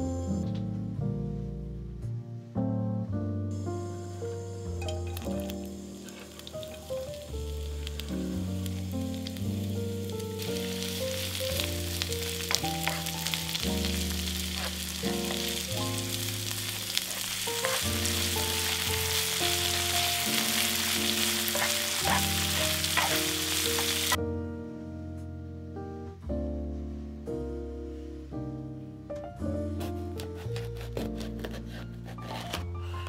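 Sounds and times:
background music: 0.0 - 33.0
onions sizzling in hot oil: 3.6 - 24.2
spatula scraping pan: 4.8 - 7.2, 10.5 - 24.2.

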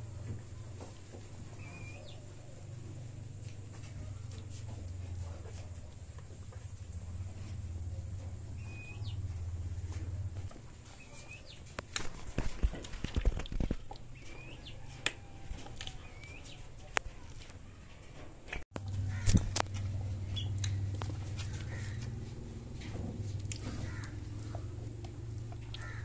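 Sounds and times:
small birds chirping: 1.5 - 2.3, 7.9 - 9.4, 10.9 - 11.7, 13.9 - 14.9, 15.9 - 16.7, 19.1 - 22.1
low steady hum: 18.8 - 26.0.

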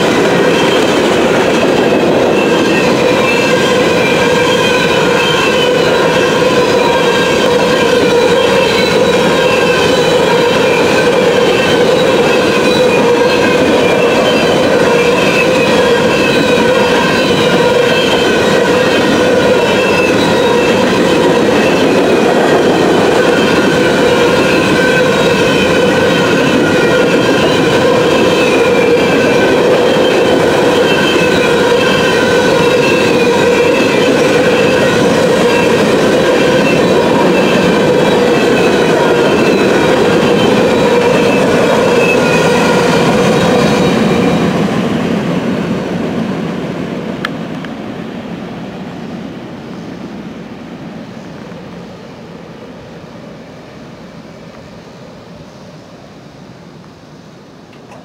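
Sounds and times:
wheel squeal: 0.0 - 45.7
freight train wheels rumbling: 0.0 - 58.0.

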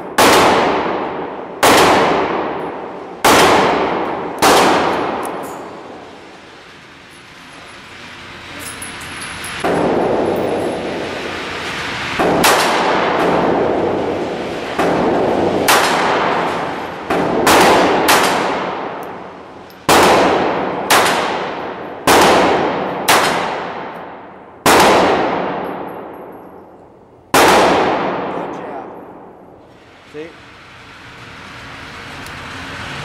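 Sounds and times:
pistol shots echoing: 0.0 - 5.4, 12.2 - 13.8, 14.8 - 19.0, 19.8 - 26.4, 27.3 - 29.3.

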